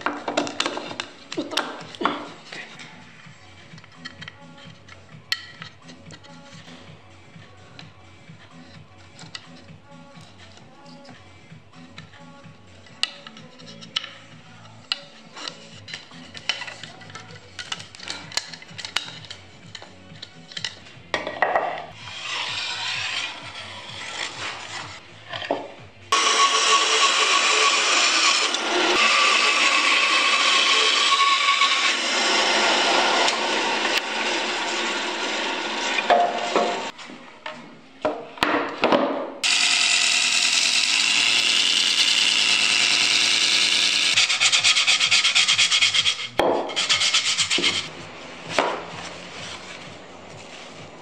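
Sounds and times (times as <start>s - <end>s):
bandsaw cutting wood: 22.0s - 25.0s, 26.1s - 36.9s, 39.4s - 47.9s.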